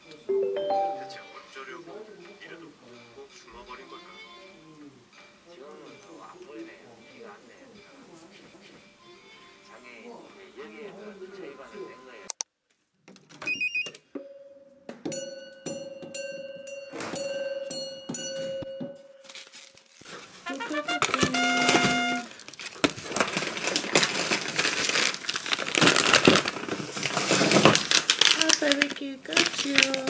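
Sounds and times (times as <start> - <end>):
background music with held notes: 0.0 - 12.3, 20.4 - 22.3
plastic packaging crinkling: 19.2 - 30.0.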